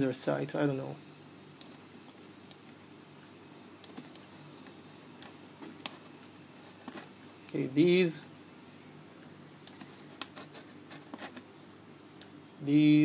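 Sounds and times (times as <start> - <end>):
faint computer mouse clicks: 9.6 - 10.3.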